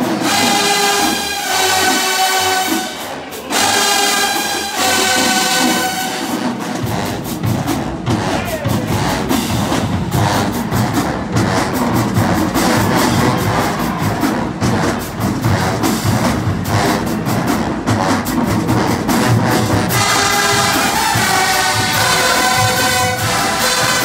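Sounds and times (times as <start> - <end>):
brass sustained chords: 0.0 - 6.6, 19.9 - 24.0
drumline percussion cadence: 0.0 - 24.0.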